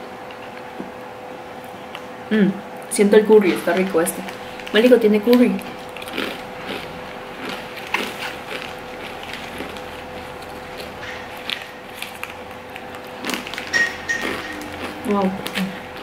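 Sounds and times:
plastic bag crinkling: 3.4s - 16.0s
crackers crunched and chewed: 3.8s - 16.0s.

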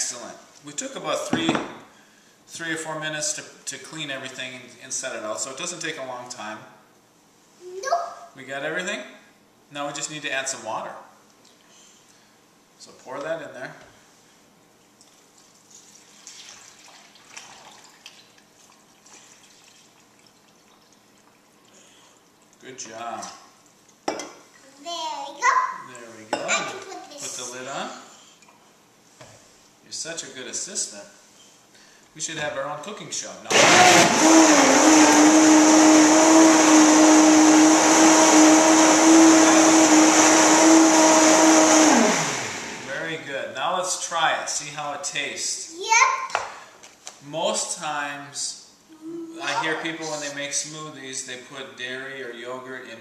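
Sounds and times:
water pouring into blender jar: 15.7s - 18.4s
blender running at high speed: 33.5s - 43.1s.

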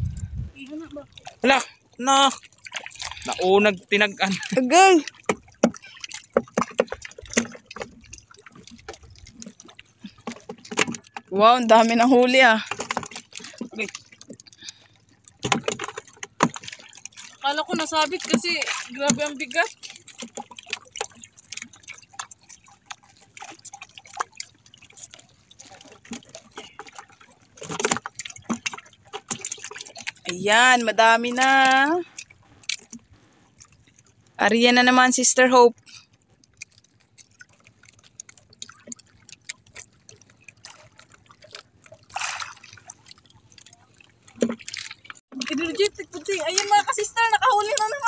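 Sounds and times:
water dripping and splashing: 0.0s - 48.0s
water running off line: 0.0s - 48.0s
fish tapping: 4.4s - 24.4s.

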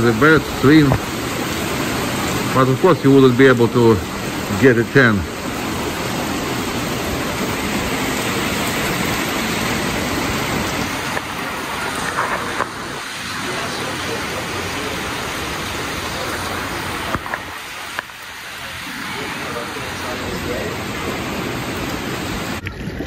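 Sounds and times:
steady rain: 0.0s - 22.7s.

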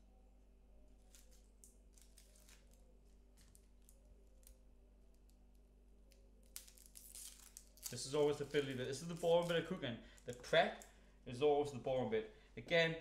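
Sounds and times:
onion skin crackling: 1.0s - 11.0s.

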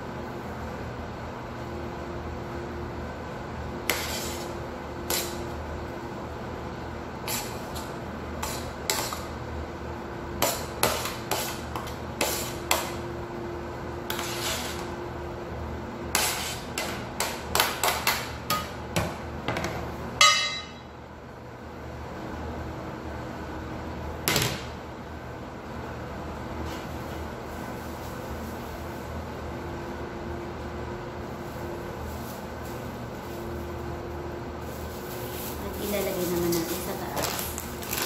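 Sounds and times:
spoon scraping plastic bowl: 3.9s - 4.5s, 14.1s - 14.9s.

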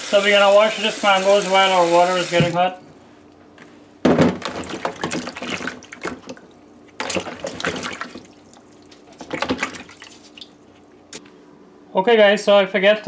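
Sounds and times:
water splashing and sloshing: 4.3s - 11.1s.

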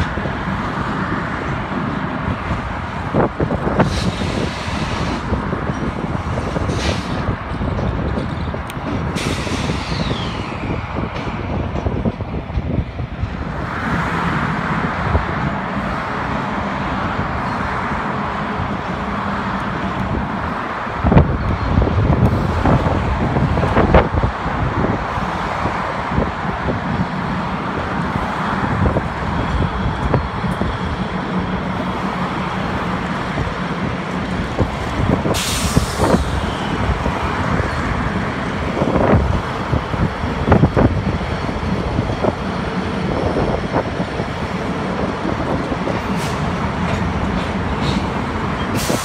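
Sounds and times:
diesel locomotive engine drone: 0.0s - 49.0s
air brake hiss: 3.8s - 5.2s, 6.7s - 7.2s, 9.2s - 10.4s, 35.3s - 36.5s, 48.7s - 49.0s.

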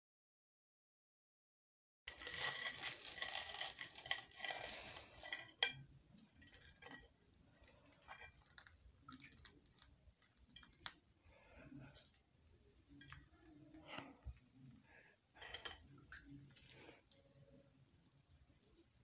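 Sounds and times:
knife sawing through crisp crust: 2.1s - 5.5s
crust crackling: 2.1s - 19.0s.

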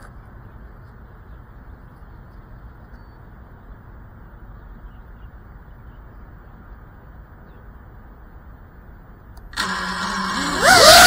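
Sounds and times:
drone motors whining: 9.5s - 11.0s.

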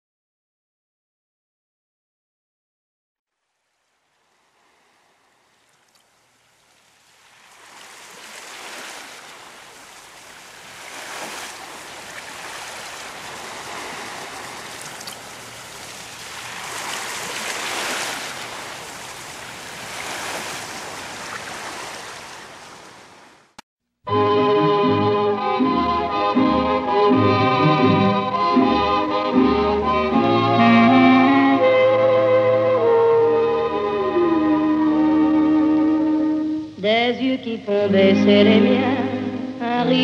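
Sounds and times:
rushing surf-like noise: 7.4s - 23.0s.

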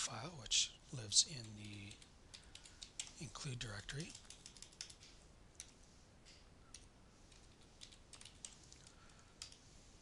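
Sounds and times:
keyboard typing: 1.4s - 9.6s.

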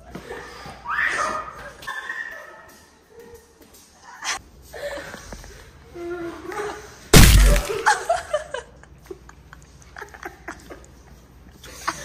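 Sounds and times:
loud smack with low thump: 7.2s - 7.8s
people giggling: 7.8s - 12.0s.

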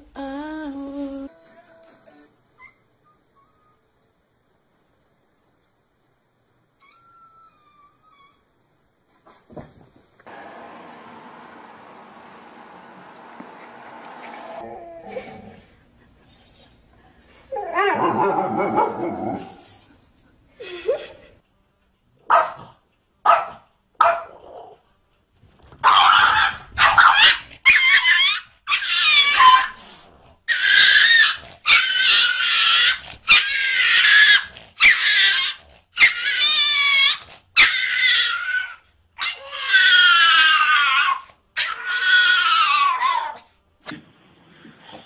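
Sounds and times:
dog yowling and whining: 6.8s - 8.5s, 14.6s - 15.5s, 16.3s - 19.7s, 25.8s - 29.8s, 30.5s - 43.5s.

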